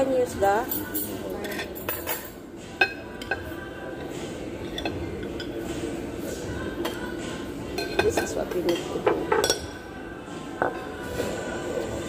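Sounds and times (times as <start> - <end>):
dishes and cutlery clinking: 0.0 - 12.0.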